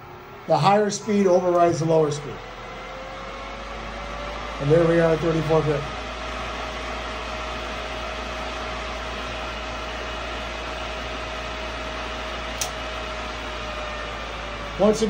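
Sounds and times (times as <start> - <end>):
faint steady whine: 0.0 - 15.0
pool pump motor whirring: 0.0 - 15.0
brief click: 12.6 - 12.8.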